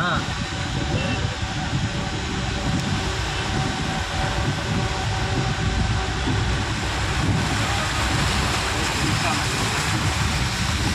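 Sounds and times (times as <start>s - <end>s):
vehicle driving through water: 5.0s - 10.9s.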